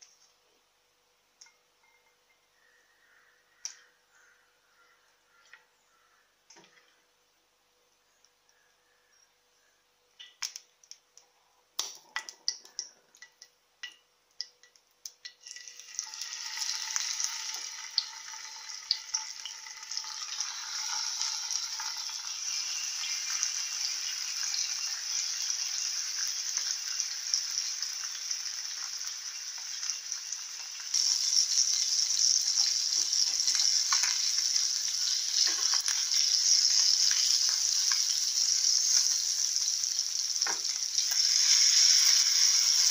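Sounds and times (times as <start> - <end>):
sharp clicks and pops: 10.2 - 15.4
fish sizzling in oil: 15.3 - 42.9.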